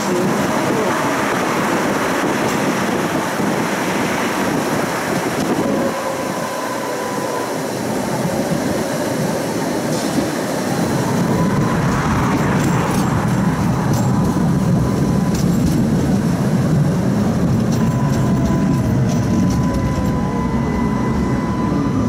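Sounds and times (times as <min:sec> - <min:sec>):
passing road traffic: 0:00.0 - 0:22.0
tram wheels rumbling on rails: 0:00.0 - 0:22.0
wind: 0:00.0 - 0:22.0
faint thin whine: 0:17.6 - 0:22.0.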